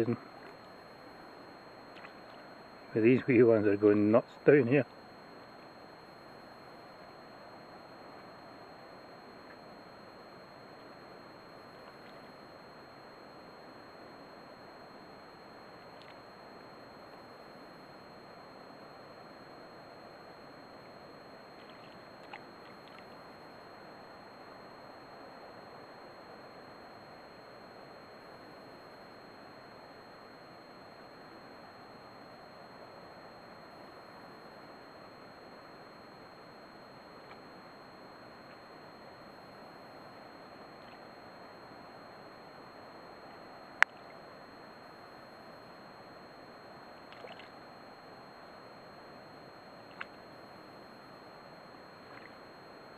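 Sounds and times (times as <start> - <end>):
wind: 0.0 - 52.9
water rippling: 1.9 - 3.0, 15.7 - 16.3, 21.5 - 23.3, 47.0 - 47.7, 49.8 - 50.4, 51.8 - 52.6
faint small splash: 47.1 - 47.5
water lapping at shore: 47.1 - 47.6.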